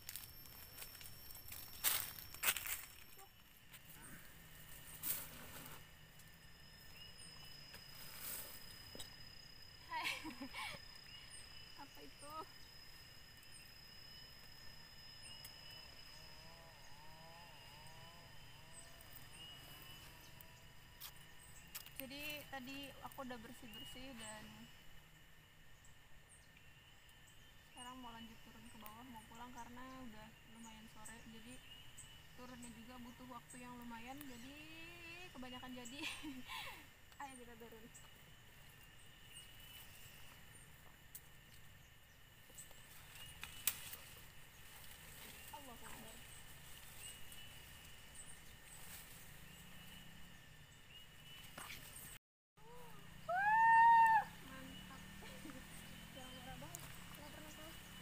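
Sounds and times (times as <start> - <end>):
footsteps on dry ground and grass: 0.0 - 3.2
insects buzzing: 0.0 - 58.0
faint rising and falling call: 52.6 - 58.0.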